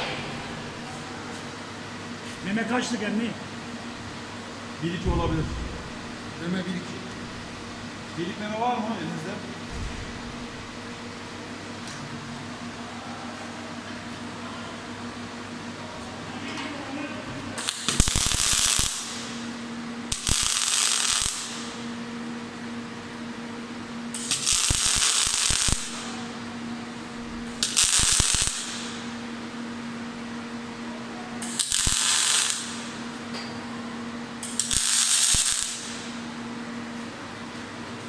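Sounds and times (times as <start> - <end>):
steady electrical hum: 0.0 - 38.0
welding arc sizzling: 17.6 - 22.1, 24.1 - 29.4, 31.4 - 33.2, 34.3 - 36.4.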